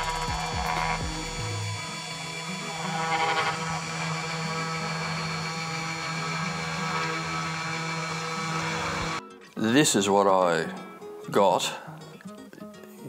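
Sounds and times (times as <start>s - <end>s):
router bit carving wood: 0.0s - 9.2s
router spindle motor whining: 0.0s - 9.2s.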